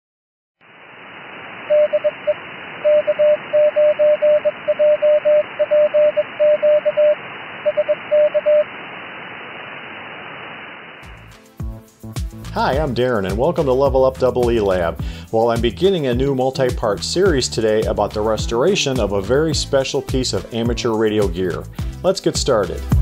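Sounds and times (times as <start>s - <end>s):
radio static hiss: 0.6s - 11.1s
morse code tone: 1.7s - 8.7s.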